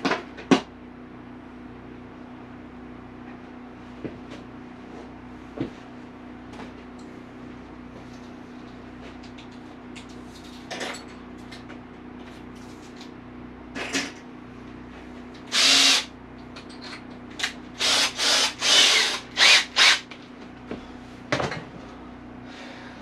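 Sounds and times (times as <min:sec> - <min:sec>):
cordless drill whirring: 0:15.5 - 0:16.1, 0:17.8 - 0:20.1.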